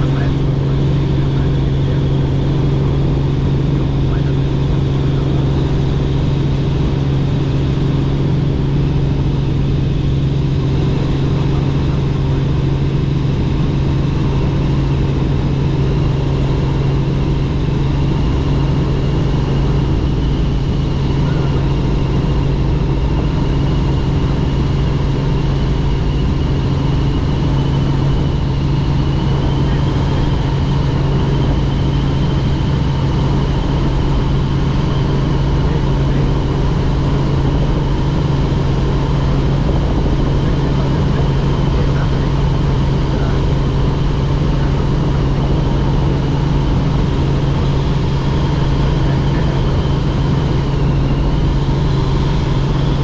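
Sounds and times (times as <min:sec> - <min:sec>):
helicopter engine and rotor drone: 0:00.0 - 0:53.0.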